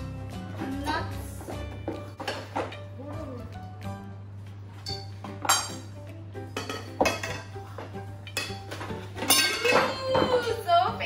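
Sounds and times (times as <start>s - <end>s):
background music: 0.0s - 11.0s
metal tubes clinking: 9.2s - 10.0s.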